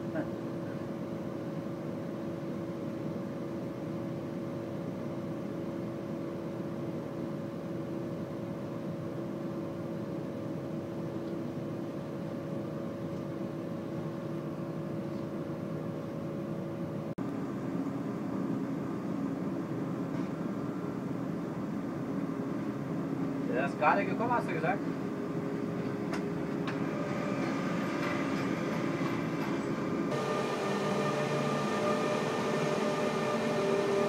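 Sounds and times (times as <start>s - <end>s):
constant hum: 10.8s - 34.0s
train running noise: 22.2s - 34.0s.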